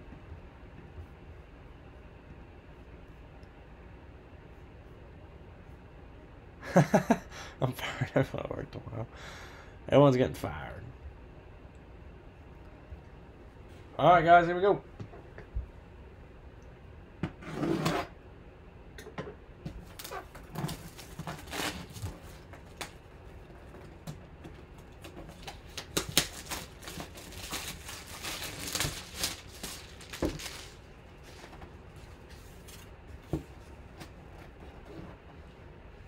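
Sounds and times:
plastic shrink wrap crinkling: 0:19.8 - 0:23.0, 0:25.3 - 0:30.9.

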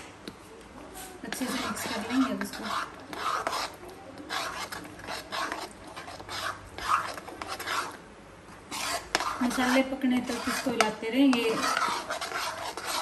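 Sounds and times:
metal ladle scraping metal pan: 0:01.3 - 0:03.7, 0:08.7 - 0:13.0.

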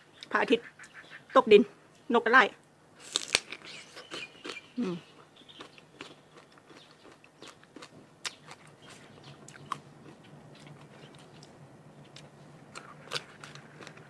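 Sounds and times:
sharp crunches: 0:03.0 - 0:05.0
chewing and biting mango: 0:03.0 - 0:14.0.

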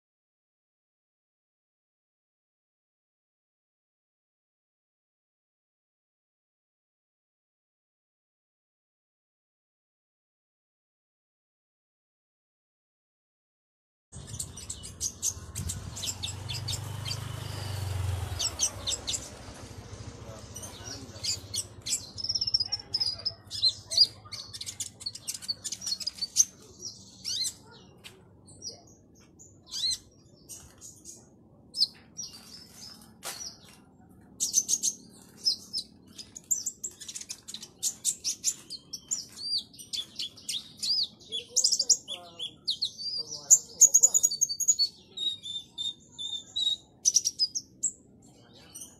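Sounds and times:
bird chirping and trilling: 0:14.2 - 0:48.9.

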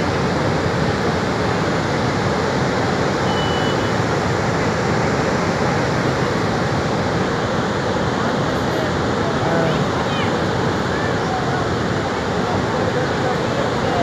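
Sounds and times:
floodwater rushing over spillway: 0:00.0 - 0:14.0.

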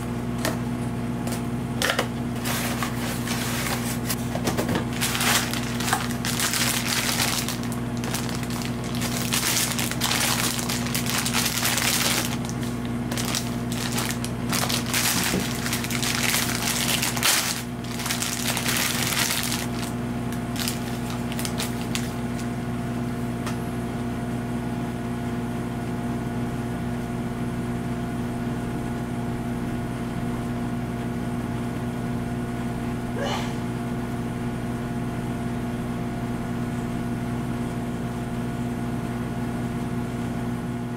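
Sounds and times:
steady low hum: 0:00.0 - 0:24.6
plastic bags crinkling: 0:02.4 - 0:22.5.

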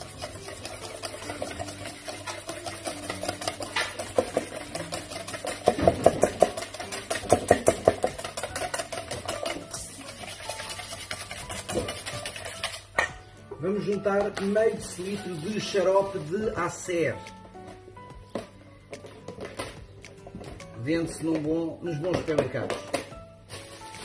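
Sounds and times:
whisk beating in metal bowl: 0:00.0 - 0:17.2.

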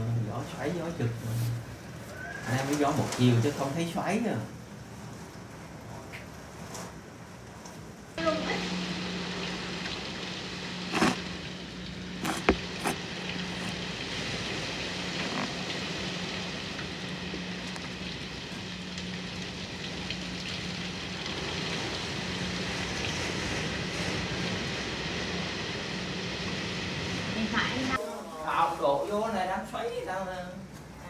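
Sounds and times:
heavy rain pouring: 0:00.0 - 0:28.0.

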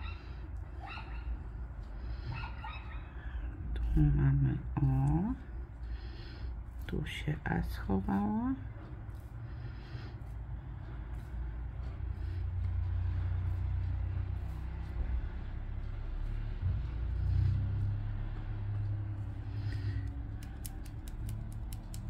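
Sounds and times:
low engine-like rumble: 0:00.0 - 0:22.0
scraper scratching a card: 0:19.6 - 0:22.0
quick clicks: 0:19.8 - 0:22.0.

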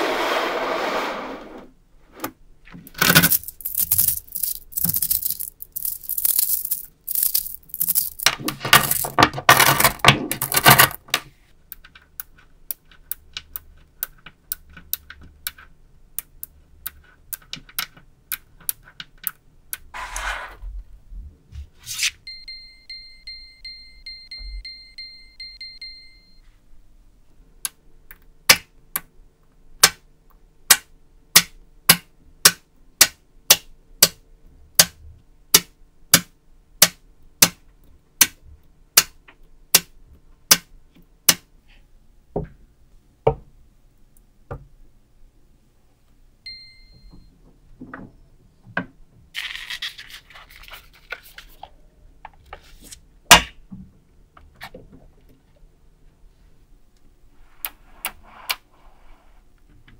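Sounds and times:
scrape: 0:00.0 - 0:02.3, 0:20.0 - 0:20.7, 0:21.5 - 0:22.2, 0:52.6 - 0:53.0, 0:57.4 - 0:59.5
magnetic balls clicking together: 0:02.9 - 0:09.2
short ringing tone: 0:46.5 - 0:47.3.

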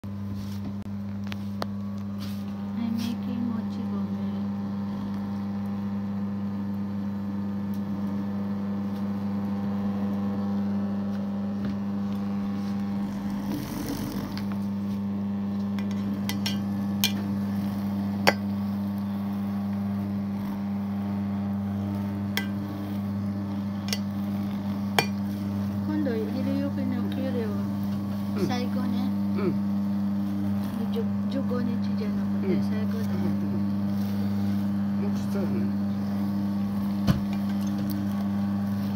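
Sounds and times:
appliance motor humming: 0:00.1 - 0:38.9.

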